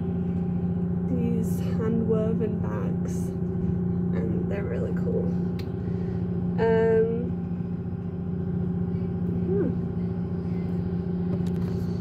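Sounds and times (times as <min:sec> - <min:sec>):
ship machinery drone: 0:00.0 - 0:12.0
woman humming: 0:06.6 - 0:07.4, 0:09.3 - 0:10.0.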